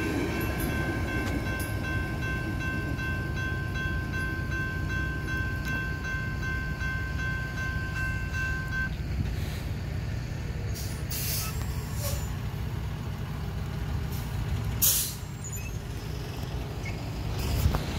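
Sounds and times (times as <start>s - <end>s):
crossing warning bell: 0.0s - 9.0s
train rumbling: 0.0s - 17.9s.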